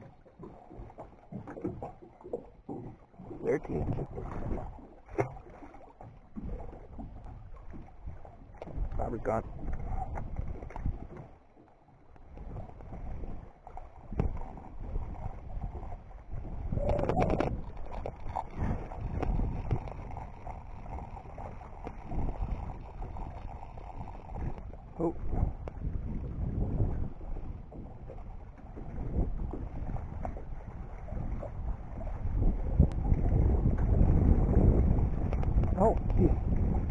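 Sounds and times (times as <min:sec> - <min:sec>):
small waves lapping against dock: 0:00.0 - 0:36.9
wind buffeting microphone: 0:14.0 - 0:36.9.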